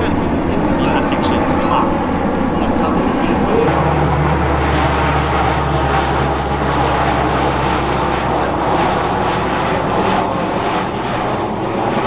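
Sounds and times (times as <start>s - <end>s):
turboprop plane droning overhead: 0.0s - 12.0s.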